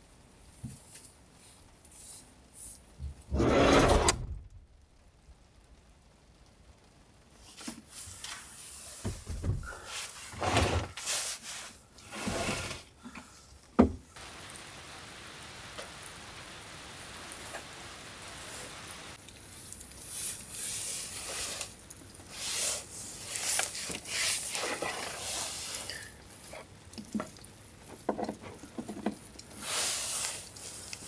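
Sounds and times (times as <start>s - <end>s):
rain hiss: 0.0s - 31.0s
rustling and knocking: 9.0s - 9.8s.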